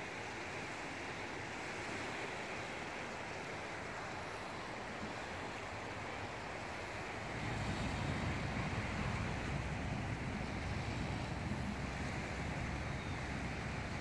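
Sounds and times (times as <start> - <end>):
small waves washing onto pebbles: 0.0 - 14.0.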